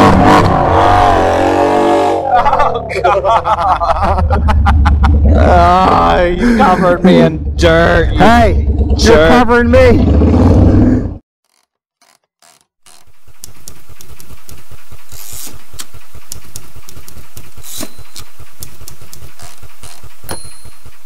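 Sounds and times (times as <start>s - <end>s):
mechanical low pulses: 4.1s - 11.2s
man speaking: 5.3s - 10.1s
crackling clicks: 11.4s - 20.4s.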